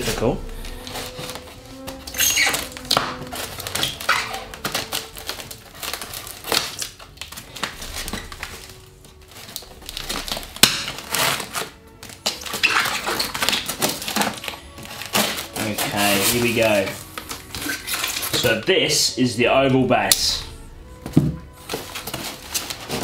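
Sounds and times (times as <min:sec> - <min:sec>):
plastic tape crinkling: 0:00.0 - 0:18.7, 0:20.0 - 0:23.0
tape snapping: 0:00.7 - 0:15.7.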